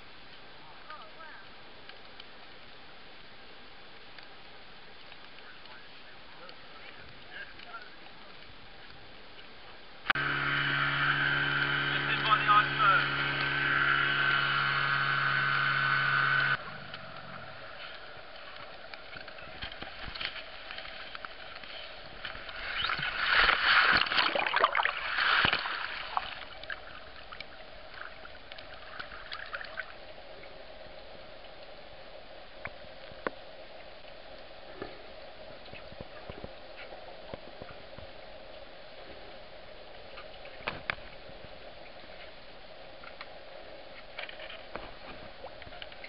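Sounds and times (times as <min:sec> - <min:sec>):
faint clicks: 0:00.3 - 0:03.3, 0:03.9 - 0:10.2, 0:16.5 - 0:23.6, 0:43.0 - 0:46.0
water splashing and sloshing: 0:00.9 - 0:46.0.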